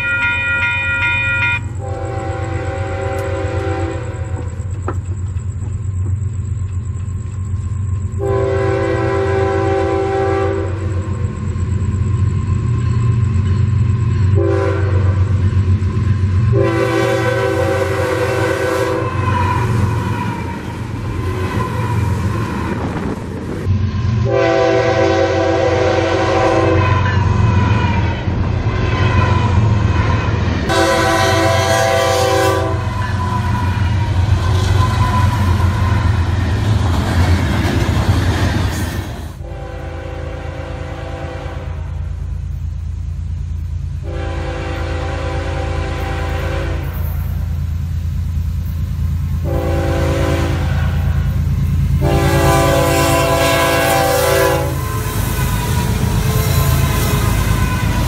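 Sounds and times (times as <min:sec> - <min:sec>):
locomotive horn blasts: 0:00.0 - 0:04.6, 0:08.2 - 0:11.2, 0:14.3 - 0:15.4, 0:16.5 - 0:23.1, 0:24.2 - 0:36.4, 0:39.4 - 0:42.1, 0:44.0 - 0:47.4, 0:49.4 - 0:51.3, 0:52.0 - 0:58.0
train rumbling: 0:00.0 - 0:58.0.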